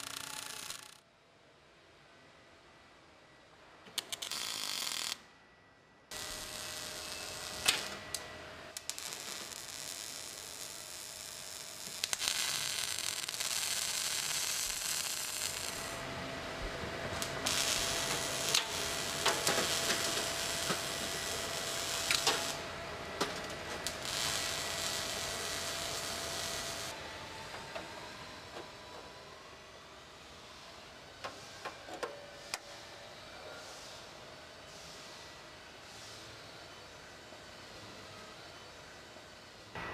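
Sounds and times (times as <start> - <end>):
arc welding sizzling: 0.0 - 1.0, 4.0 - 5.2, 6.1 - 27.0.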